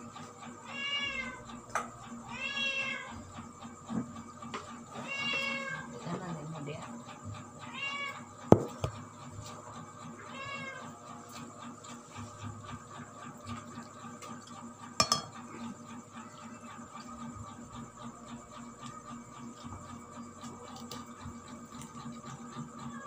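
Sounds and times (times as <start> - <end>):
cat meowing: 5.0 - 5.9, 7.6 - 8.3, 10.3 - 10.9.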